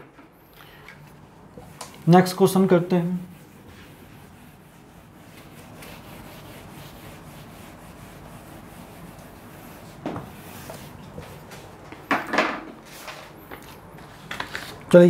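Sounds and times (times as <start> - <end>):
eraser wiping whiteboard: 1.6 - 11.8.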